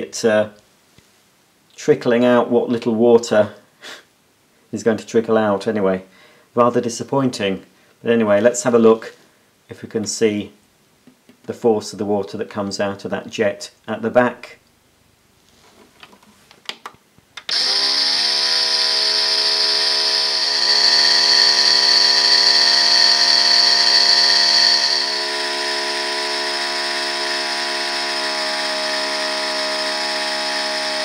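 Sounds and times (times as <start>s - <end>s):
small water pump whining: 17.5s - 31.0s.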